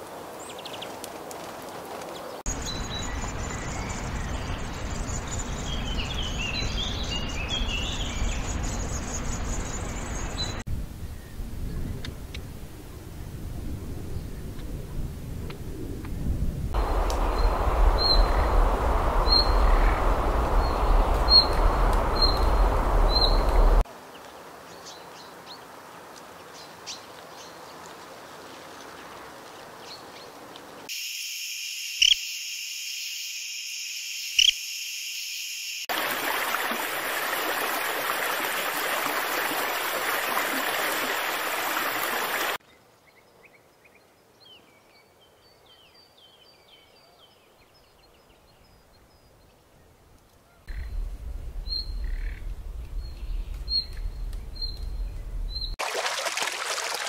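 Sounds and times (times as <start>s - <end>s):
small birds chirping: 2.1s - 10.6s, 16.8s - 25.7s, 41.2s - 55.8s
low rumble: 15.7s - 23.8s, 50.7s - 55.8s
running water rushing: 16.8s - 23.9s, 35.9s - 42.6s, 55.6s - 57.0s.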